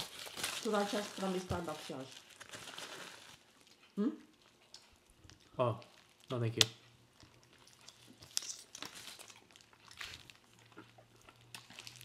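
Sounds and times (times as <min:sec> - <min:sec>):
paper wrapper crinkling: 0:00.0 - 0:03.8, 0:07.2 - 0:10.6
soft chewing: 0:03.2 - 0:12.0.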